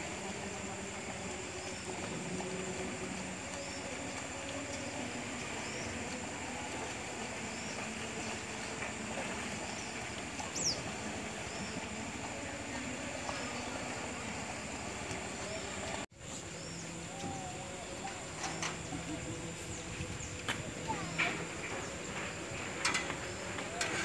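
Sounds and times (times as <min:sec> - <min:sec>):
fast-flowing river rushing: 0:00.0 - 0:16.1.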